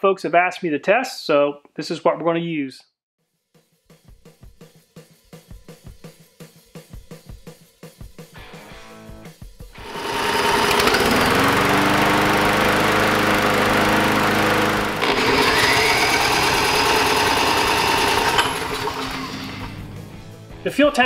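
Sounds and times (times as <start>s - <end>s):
lawn mower engine running: 9.8s - 20.0s.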